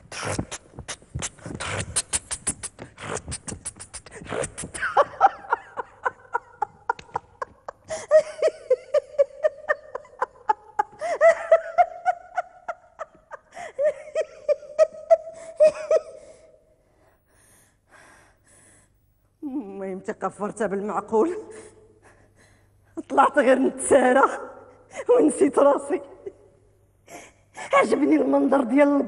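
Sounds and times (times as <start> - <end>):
woman laughing: 4.5 - 16.4.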